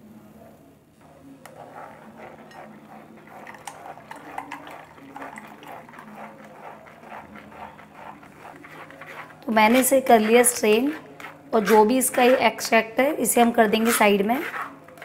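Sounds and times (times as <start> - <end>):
spatula scraping mesh strainer: 1.0 - 15.0
juice pouring through metal strainer: 1.4 - 12.4.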